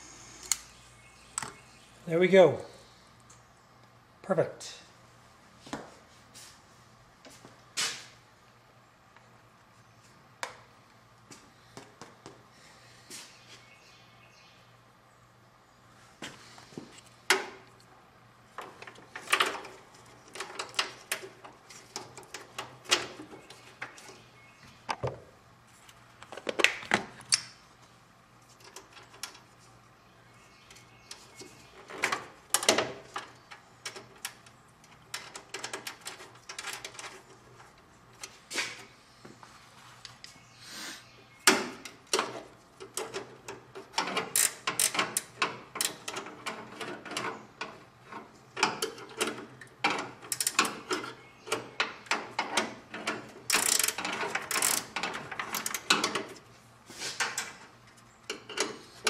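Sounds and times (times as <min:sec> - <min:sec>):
hand tools clicking and rattling: 0:42.1 - 0:56.4.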